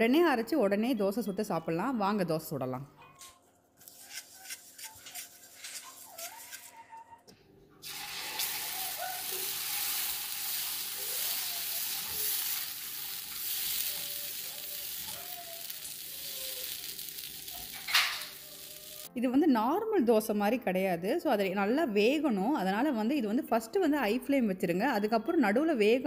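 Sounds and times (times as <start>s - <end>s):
batter sizzling on a hot pan: 7.8s - 19.1s.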